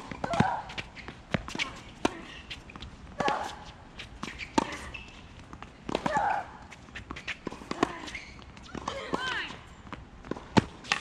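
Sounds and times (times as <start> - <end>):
ball bouncing on court: 0.0 - 2.2
tennis ball struck by rackets: 0.0 - 3.6, 5.5 - 11.0.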